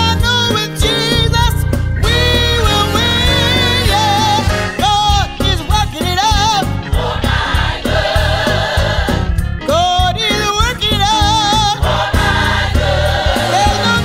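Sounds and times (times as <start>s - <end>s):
band with low bass: 0.0s - 14.0s
choir singing: 2.4s - 9.4s, 11.5s - 14.0s.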